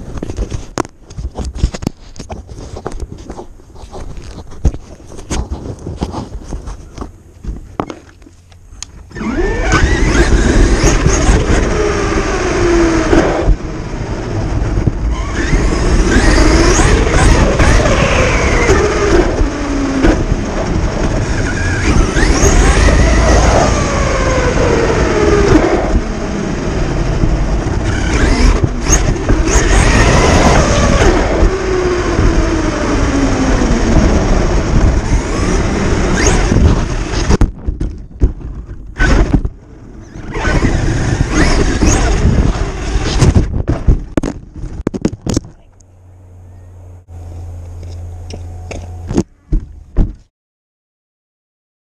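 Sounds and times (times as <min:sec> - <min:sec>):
steady rushing noise: 0:00.0 - 0:50.2
rc truck motor whine: 0:07.9 - 0:37.4, 0:38.9 - 0:43.4.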